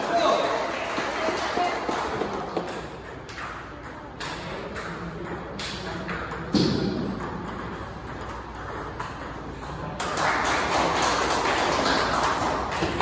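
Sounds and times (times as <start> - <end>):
table tennis balls clicking: 2.4 - 10.2, 11.3 - 13.0.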